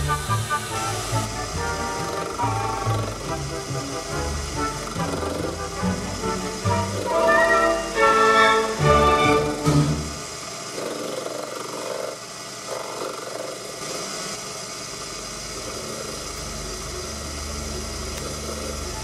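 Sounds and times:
lathe turning steel: 0.0 - 11.1.

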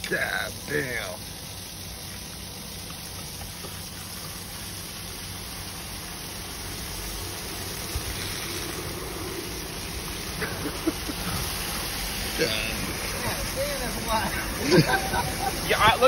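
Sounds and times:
water gushing from drain pipe: 0.0 - 16.0.

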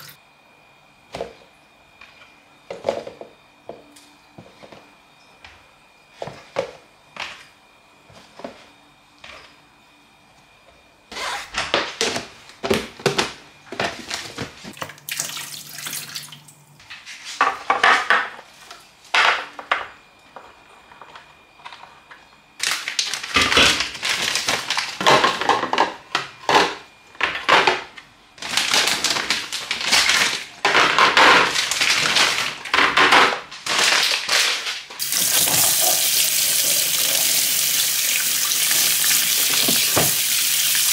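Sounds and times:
kitchen tap running: 14.8 - 16.4, 35.0 - 40.9
plastic bags crinkling: 28.4 - 32.7, 33.6 - 36.9.

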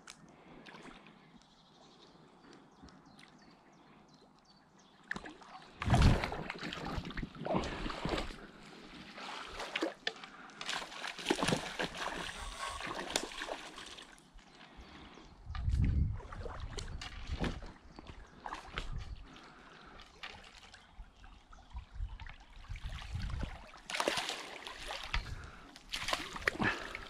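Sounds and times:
fish splashing in water: 9.2 - 14.2, 23.4 - 27.0.

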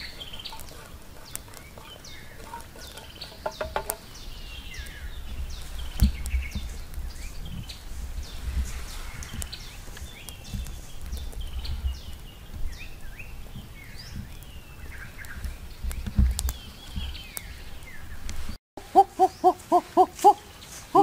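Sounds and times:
birds chirping: 0.0 - 21.0
short evenly spaced hoots: 18.8 - 21.0.

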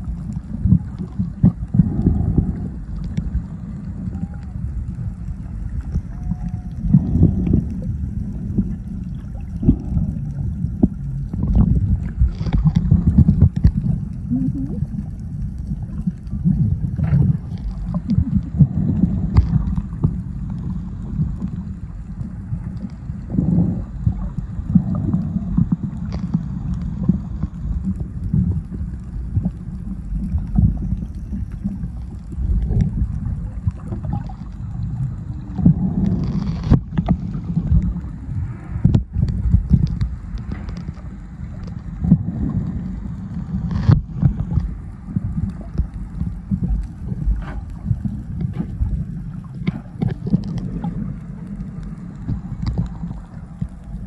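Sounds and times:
underwater water rumble: 0.0 - 54.0.

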